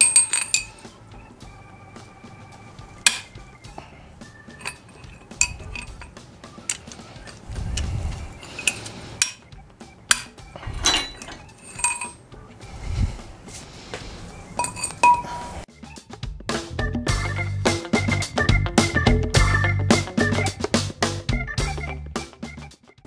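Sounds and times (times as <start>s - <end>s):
wrench clinking on metal bolts: 0.0s - 0.9s, 3.0s - 3.4s, 4.5s - 7.4s, 8.4s - 9.5s, 10.1s - 12.2s, 14.6s - 15.4s.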